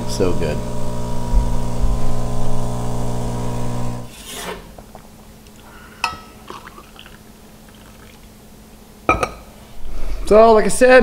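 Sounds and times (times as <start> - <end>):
espresso machine pump buzzing: 0.0 - 4.1
mug clinking: 6.0 - 8.2, 9.1 - 9.4.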